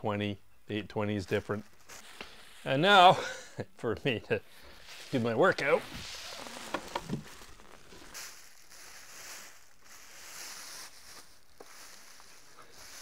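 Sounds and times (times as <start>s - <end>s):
plastic wrapping crinkling: 4.6s - 13.0s.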